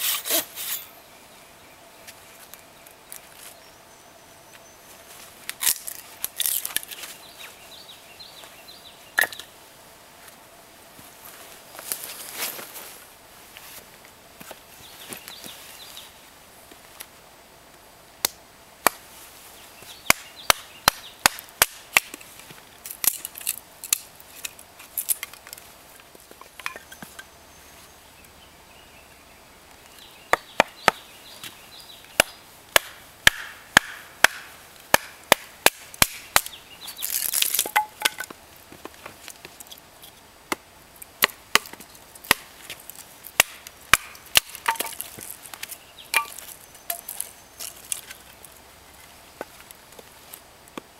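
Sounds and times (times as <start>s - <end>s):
axe splitting logs: 30.3s - 31.0s, 32.2s - 36.5s, 40.5s - 42.6s, 43.3s - 48.1s.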